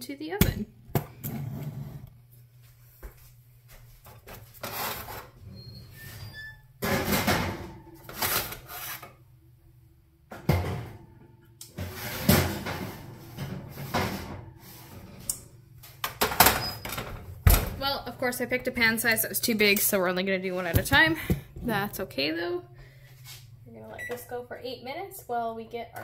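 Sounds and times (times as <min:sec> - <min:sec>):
metal trays clunking in oven: 0:06.8 - 0:08.3, 0:11.8 - 0:14.6.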